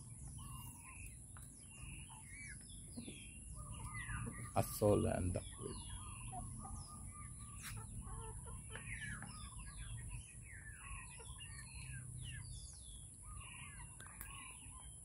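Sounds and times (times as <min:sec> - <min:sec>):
chickens clucking: 0:00.0 - 0:15.0
high chirping calls: 0:00.0 - 0:15.0.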